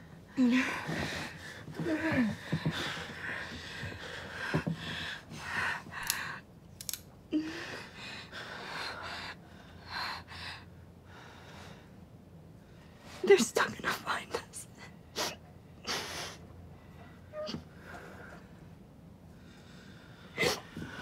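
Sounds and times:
woman breathing heavily: 0.0s - 6.5s, 7.3s - 13.2s, 15.1s - 21.0s
small clicks: 6.8s - 7.1s.

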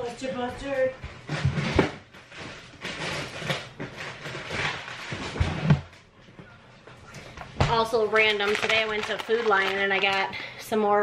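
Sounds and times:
items shifted on shelves: 1.1s - 6.0s
packaging rustling: 8.1s - 10.2s.

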